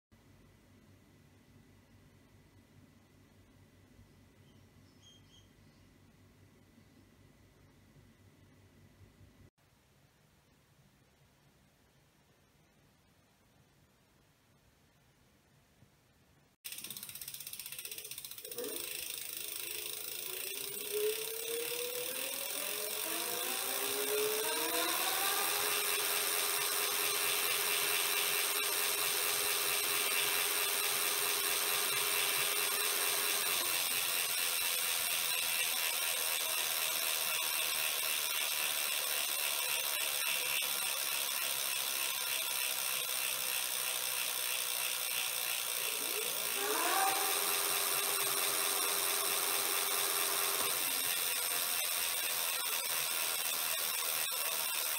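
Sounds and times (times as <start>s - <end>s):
ratcheting whir of freewheel: 16.6s - 54.9s
electric motor whine: 18.6s - 54.9s.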